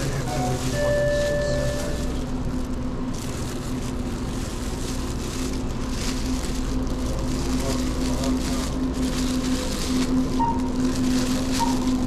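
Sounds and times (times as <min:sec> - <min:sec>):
plastic bag crinkling: 0:00.0 - 0:12.0
steady low hum: 0:00.0 - 0:12.0
held electronic tone: 0:00.3 - 0:02.1.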